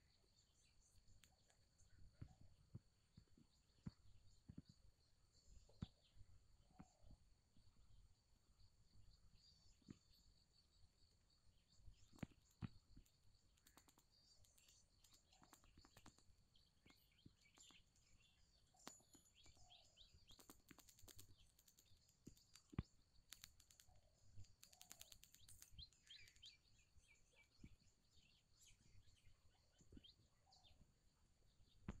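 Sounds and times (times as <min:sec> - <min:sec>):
distant birds chirping: 0:00.0 - 0:32.0
light clicks: 0:12.0 - 0:17.8, 0:18.8 - 0:19.6, 0:20.3 - 0:26.6.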